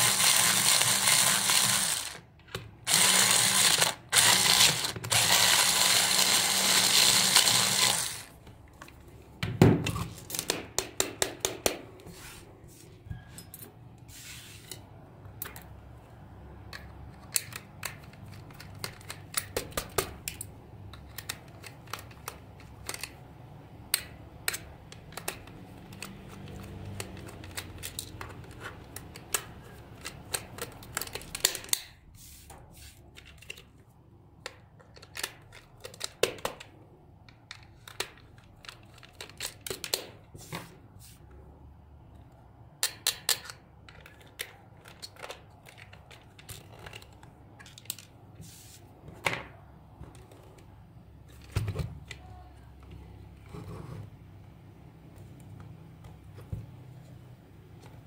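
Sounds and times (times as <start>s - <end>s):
plastic toy clicks and scrapes: 0.0s - 8.4s.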